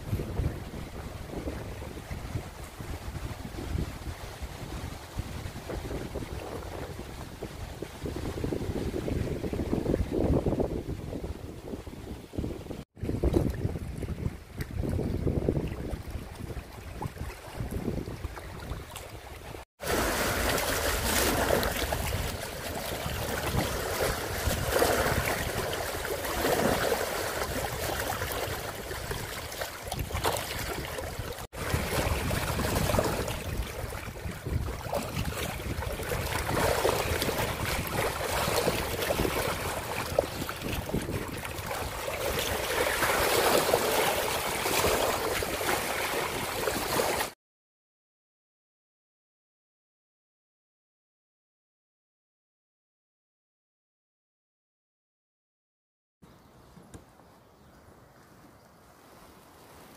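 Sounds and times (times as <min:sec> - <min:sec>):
wind buffeting microphone: 0:00.0 - 0:19.6, 0:20.2 - 0:47.0
waves lapping against rocks: 0:00.0 - 0:47.4, 0:58.3 - 0:59.9.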